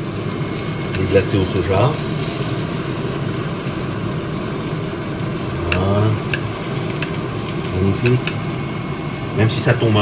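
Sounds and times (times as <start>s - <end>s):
fan running: 0.0s - 10.0s
tongs clicking against metal: 5.7s - 7.2s, 8.0s - 8.4s.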